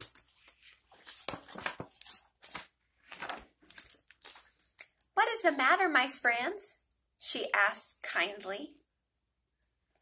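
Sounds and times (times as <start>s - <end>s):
book page rustling: 0.0s - 4.8s.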